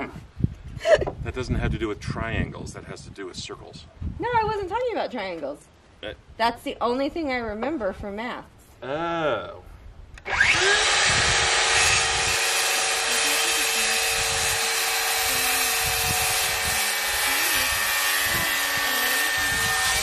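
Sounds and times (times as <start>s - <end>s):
circular saw spinning up: 10.2s - 20.0s
saw cutting wooden board: 10.2s - 20.0s.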